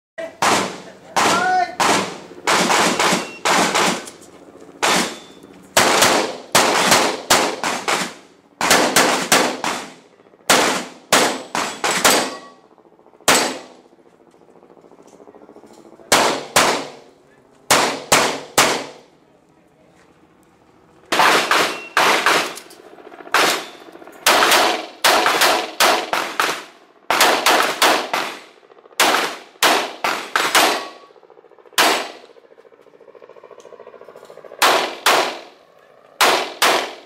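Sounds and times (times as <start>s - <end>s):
handgun shots with echo: 4.8s - 12.5s, 13.3s - 13.7s, 16.1s - 17.0s, 17.7s - 19.0s, 21.1s - 22.7s, 23.4s - 28.4s, 29.0s - 31.1s, 31.8s - 32.2s, 34.6s - 35.5s, 36.2s - 37.0s.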